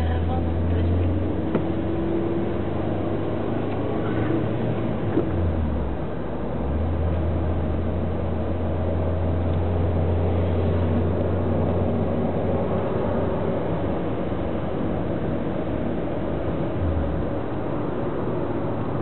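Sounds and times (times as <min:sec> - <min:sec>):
car engine drone: 0:00.0 - 0:19.0
road and tyre rumble: 0:00.0 - 0:19.0.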